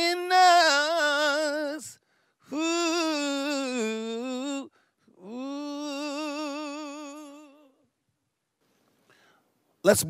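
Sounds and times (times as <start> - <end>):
person singing unaccompanied: 0.0 - 7.9.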